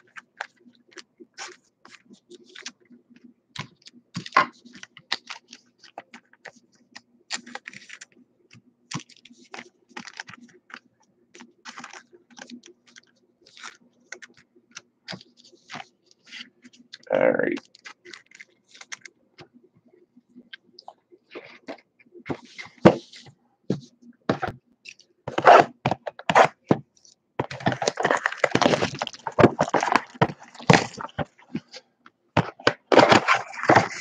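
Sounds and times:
plastic sleeve rustling: 0:08.9 - 0:19.5, 0:20.7 - 0:34.0
cards clicking and snapping: 0:17.6 - 0:19.1.

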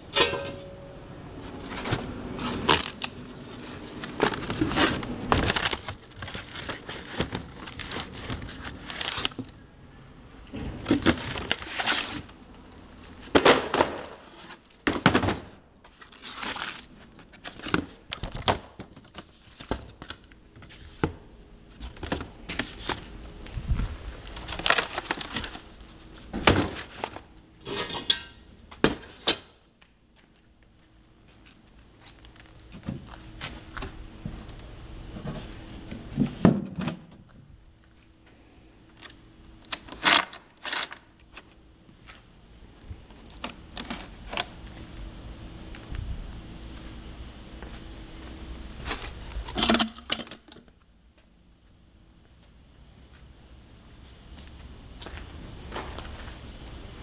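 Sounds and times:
cardboard crinkling and rustling: 0:01.4 - 0:09.6, 0:10.6 - 0:15.2, 0:15.8 - 0:27.4, 0:39.0 - 0:44.9.

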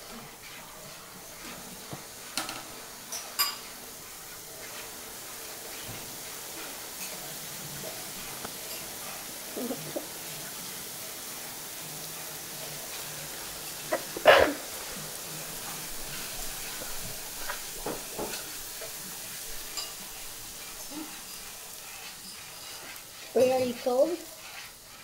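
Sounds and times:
liquid nitrogen sizzling: 0:00.0 - 0:25.0
spoon stirring: 0:15.5 - 0:25.0.

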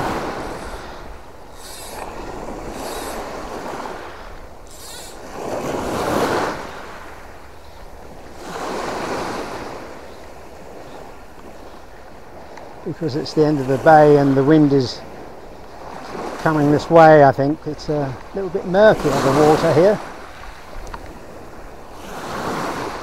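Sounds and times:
waves washing over stony shore: 0:00.0 - 0:07.4, 0:08.0 - 0:11.2, 0:12.2 - 0:23.0.

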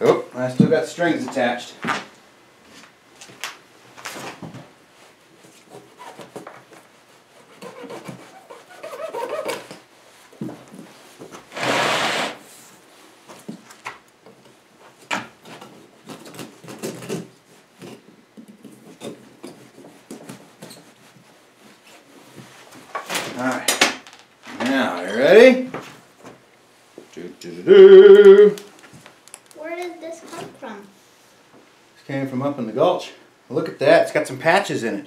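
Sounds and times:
rubber rubbing and scraping: 0:07.3 - 0:09.8, 0:11.5 - 0:12.4.

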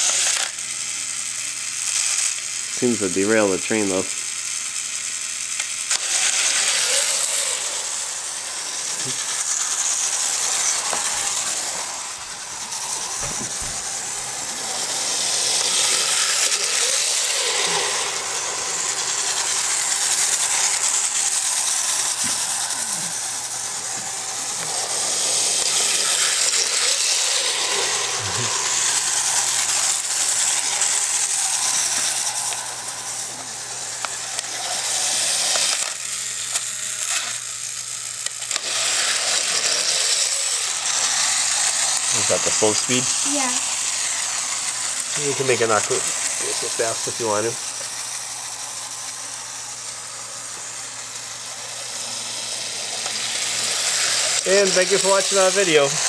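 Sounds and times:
toy train motor whirring: 0:00.0 - 0:56.0.

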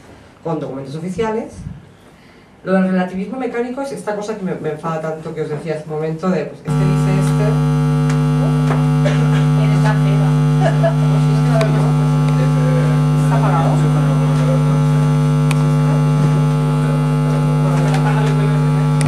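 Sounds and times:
electrical mains hum: 0:00.0 - 0:19.0
faint voices: 0:06.7 - 0:19.0.

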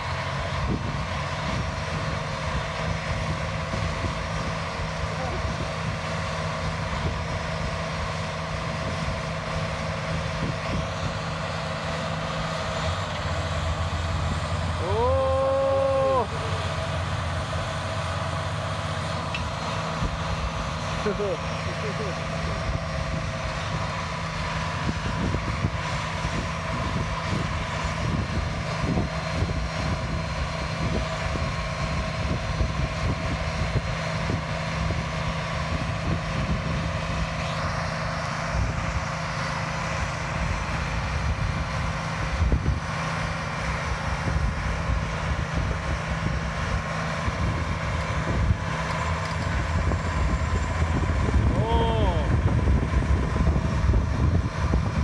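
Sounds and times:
tractor engines droning under load: 0:00.0 - 0:55.0.

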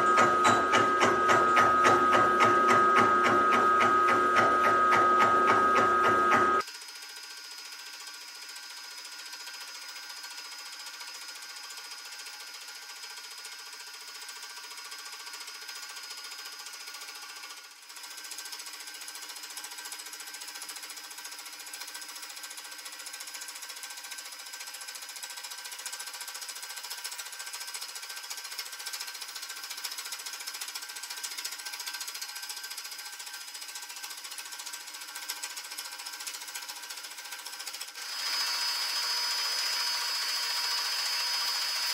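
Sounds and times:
milling machine whirring: 0:00.0 - 0:06.6.

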